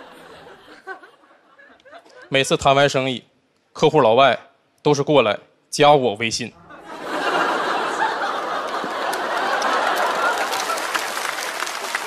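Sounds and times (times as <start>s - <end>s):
studio audience laughing: 0.0s - 2.4s, 6.6s - 12.0s
scattered clapping: 8.5s - 12.0s.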